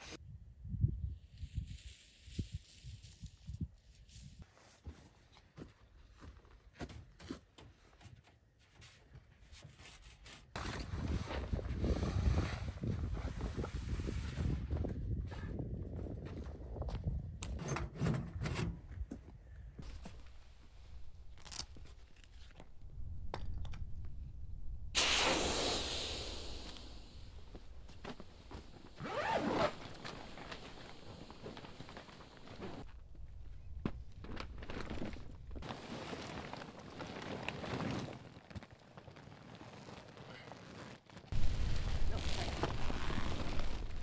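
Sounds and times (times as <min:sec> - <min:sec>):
wind noise on microphone: 0:00.0 - 0:04.4, 0:10.6 - 0:19.2
air hissing out of valve: 0:25.0 - 0:27.7
rustling: 0:27.3 - 0:33.0, 0:33.9 - 0:44.0.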